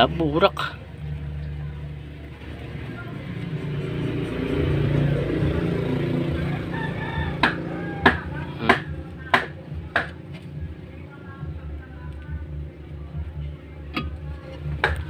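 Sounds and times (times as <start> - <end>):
rooster crowing: 6.2 - 8.6.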